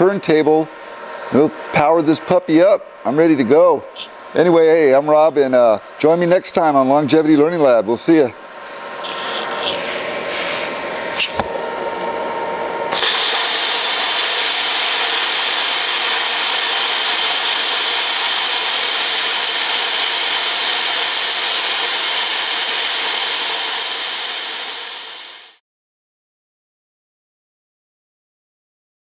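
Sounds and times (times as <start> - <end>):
steady hum: 0.0 - 24.9
plasma cutter arc hissing: 12.9 - 25.6.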